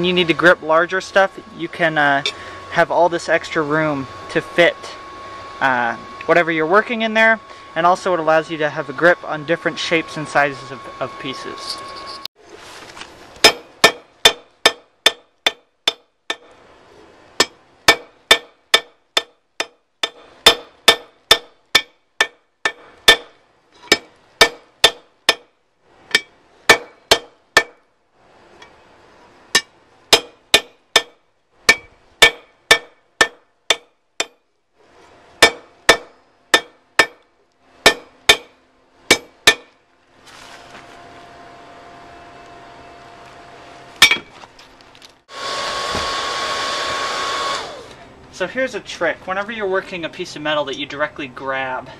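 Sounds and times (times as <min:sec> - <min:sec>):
hammer striking hot metal on anvil: 0:13.4 - 0:16.5, 0:17.4 - 0:23.3, 0:23.9 - 0:25.5, 0:26.1 - 0:27.8, 0:29.5 - 0:34.4, 0:35.4 - 0:37.2, 0:37.8 - 0:38.5, 0:39.1 - 0:39.8, 0:44.0 - 0:44.3.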